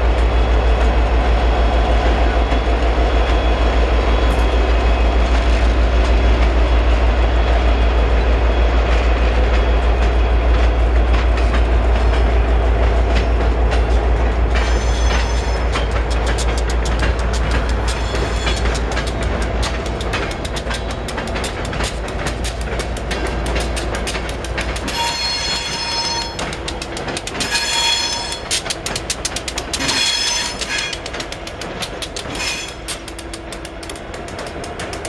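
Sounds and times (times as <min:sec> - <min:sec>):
train wheels clicking over rail joints: 0:00.0 - 0:35.0
high-pitched wheel squeals: 0:14.6 - 0:15.7.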